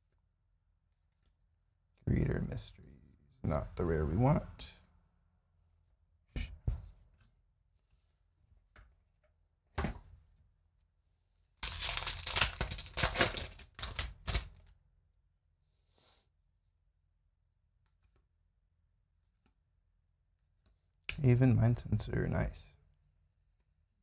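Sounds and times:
foil wrapper tearing and crinkling: 11.6 - 14.6.

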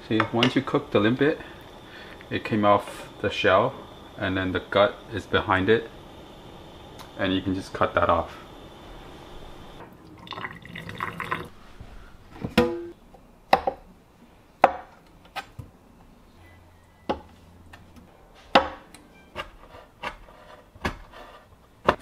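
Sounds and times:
water bubbling in a pot: 9.4 - 11.5.

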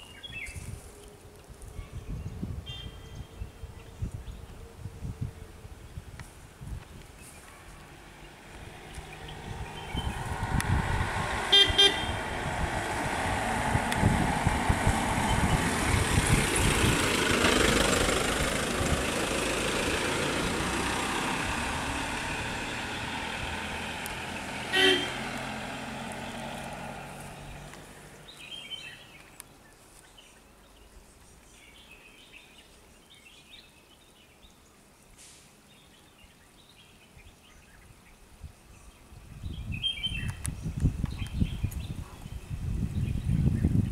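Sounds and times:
vehicle driving past: 7.8 - 29.0
car horn toot: 11.5 - 12.2, 24.7 - 25.3.

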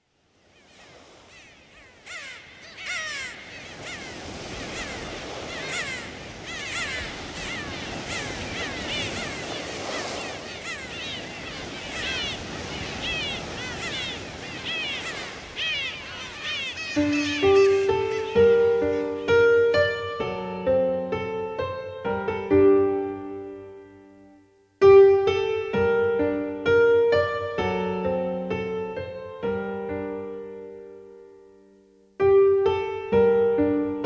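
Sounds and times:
steady background hiss: 0.0 - 34.0
birds chirping: 0.4 - 20.4
piano music: 16.9 - 34.0.

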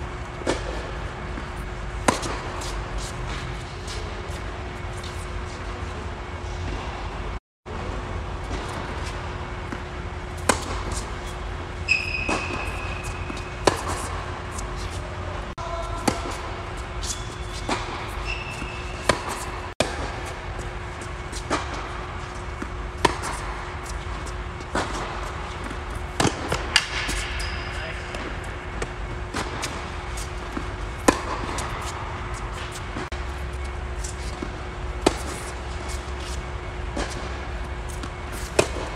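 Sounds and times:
steady low hum: 0.0 - 38.9
tennis ball hit by racket: 10.4 - 15.0, 15.9 - 20.3, 22.5 - 24.0, 24.6 - 27.3, 30.5 - 33.1, 34.3 - 38.9
shoe squeaks: 10.9 - 19.7, 26.8 - 28.2
ball bouncing on court: 11.9 - 14.9, 15.7 - 20.7, 30.5 - 32.0.

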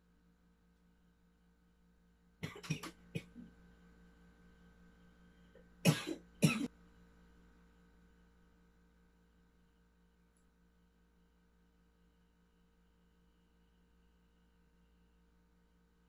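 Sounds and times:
person coughing: 2.4 - 3.4, 5.9 - 6.7.

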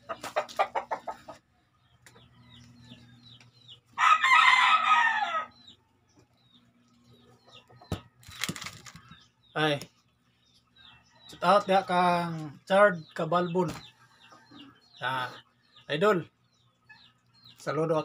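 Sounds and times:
rooster clucking: 0.0 - 1.6
rooster crowing: 4.0 - 5.6.

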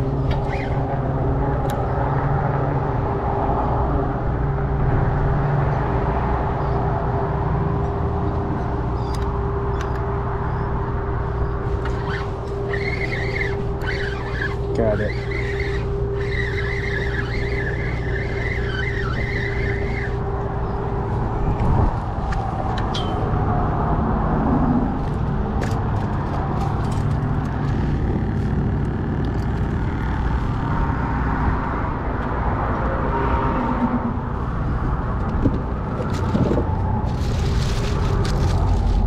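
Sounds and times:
steady low rumble: 0.0 - 39.0
spinning reel cranked: 0.3 - 0.9, 11.8 - 20.3.

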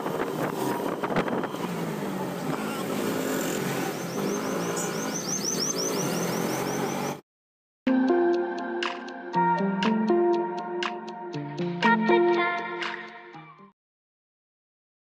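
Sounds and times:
auto-rickshaw engine running: 0.0 - 7.2
street traffic: 0.0 - 7.2.

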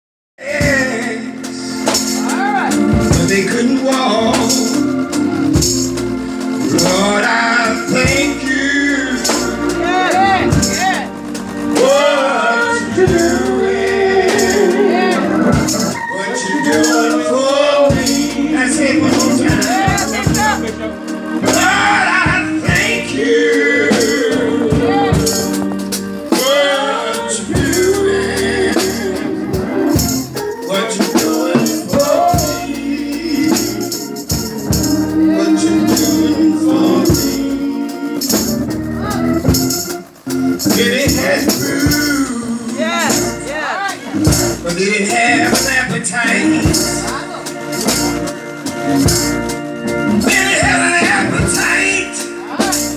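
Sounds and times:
man singing into a microphone: 0.4 - 5.1, 6.6 - 10.8, 11.8 - 25.6, 26.3 - 38.4, 40.6 - 47.4, 50.1 - 52.9
live gospel music: 0.4 - 52.9
sharp percussion hits: 0.5 - 52.9
rattling hand percussion: 0.6 - 29.3, 29.9 - 52.9.

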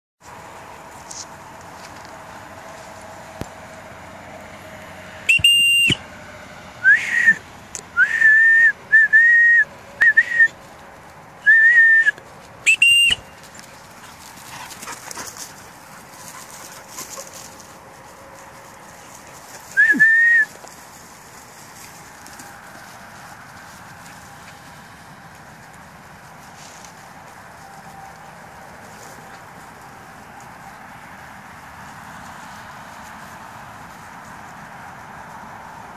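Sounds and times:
high whistle blasts: 5.3 - 6.0, 6.8 - 7.4, 8.0 - 10.5, 11.4 - 12.1, 12.7 - 13.3, 19.8 - 20.5
short lower whistled notes: 5.3 - 6.0, 12.7 - 13.3, 19.8 - 20.5.

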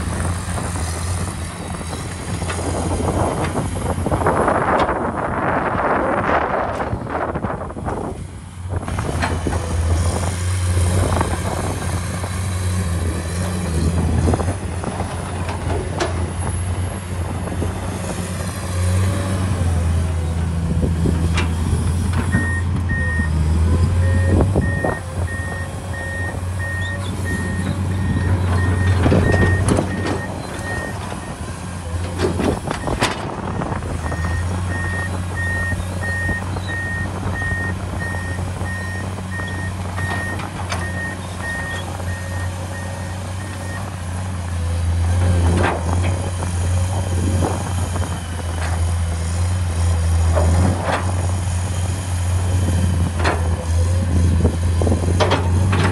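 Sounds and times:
excavator diesel engine humming: 0.0 - 55.9
reversing warning alarm beeping: 22.3 - 23.4, 24.0 - 31.4.

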